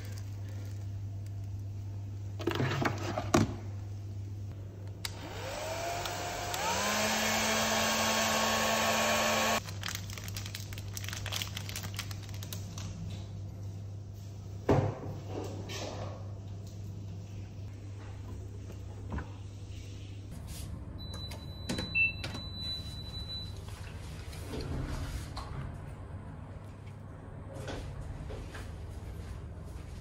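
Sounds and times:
hair dryer running: 5.1s - 9.6s.

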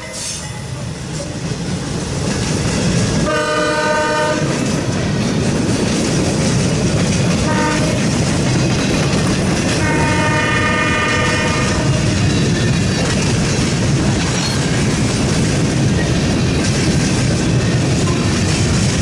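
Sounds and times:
steel wheels rumbling on rails: 0.0s - 19.0s
locomotive air horn: 3.2s - 4.6s, 7.4s - 8.1s, 9.8s - 12.2s.

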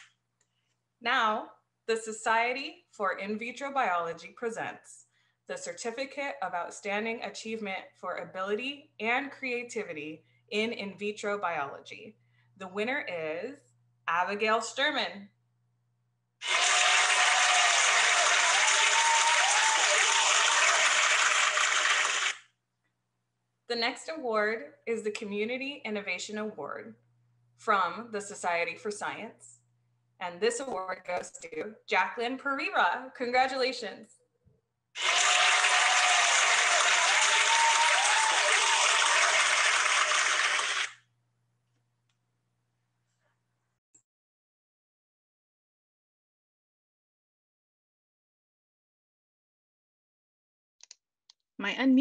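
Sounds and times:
crowd applause: 16.4s - 22.4s, 35.0s - 40.9s.

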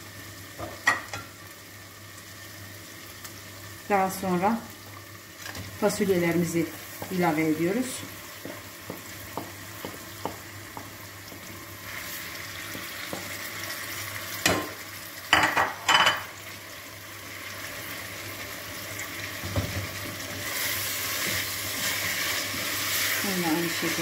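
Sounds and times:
food sizzling in a pot: 0.0s - 24.0s
wooden spoon tapping: 8.4s - 11.4s.

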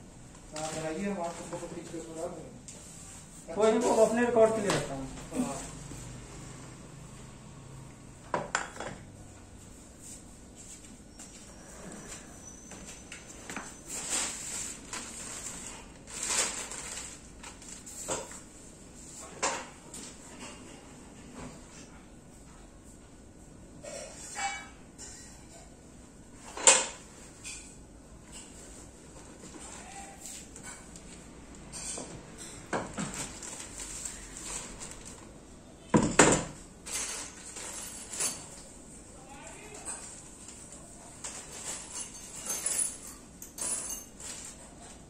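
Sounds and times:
plastic film rustling and crinkling: 0.4s - 5.8s, 13.7s - 18.5s, 33.0s - 35.5s
chair parts knocking on marble floor: 8.3s - 9.1s, 35.9s - 36.6s.

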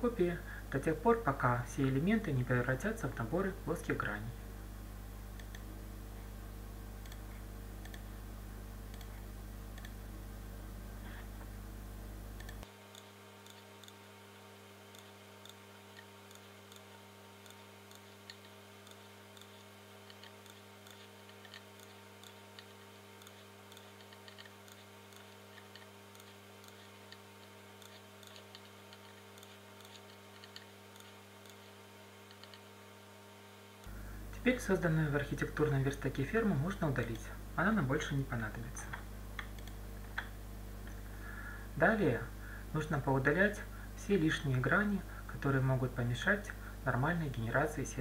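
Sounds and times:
low electrical hum: 0.0s - 48.0s
computer mouse clicking: 5.4s - 5.7s, 7.0s - 7.2s, 7.8s - 8.1s, 8.9s - 9.2s, 9.8s - 10.0s, 12.4s - 14.0s, 14.9s - 32.7s, 39.4s - 40.3s.

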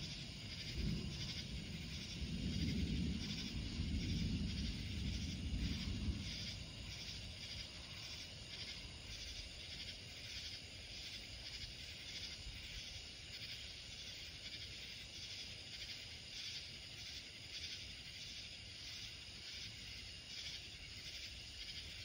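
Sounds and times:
faint low rumble: 0.0s - 9.9s
night insects chirping: 0.0s - 22.0s.

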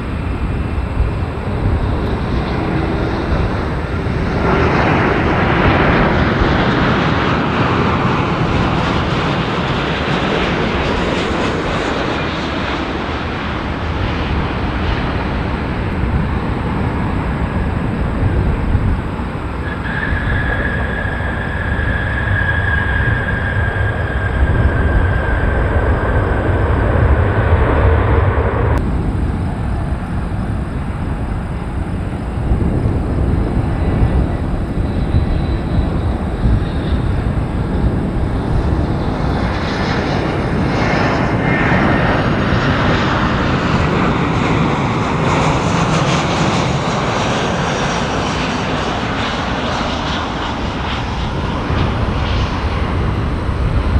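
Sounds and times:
jet engines rumbling and whining: 0.0s - 53.9s
second jet noise: 0.0s - 53.9s.

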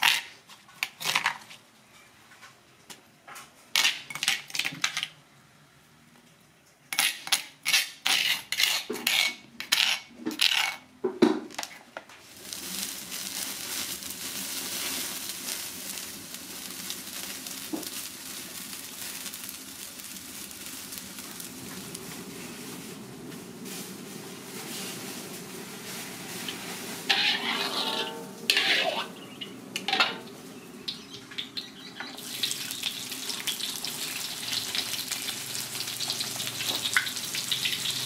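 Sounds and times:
metal spoon scraping stone mortar: 7.0s - 10.8s, 27.1s - 29.2s
open fire hissing: 12.0s - 38.0s.

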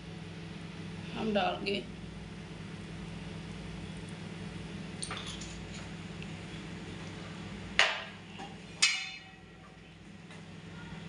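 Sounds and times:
steady low hum: 0.0s - 11.0s
kitchen clatter: 5.0s - 5.9s, 7.8s - 9.4s.

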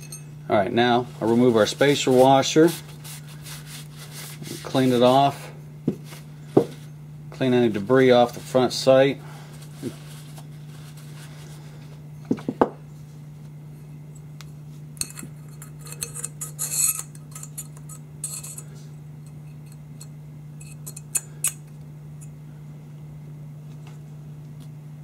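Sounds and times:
metal parts clinking and scraping: 15.0s - 18.7s, 19.3s - 21.7s.

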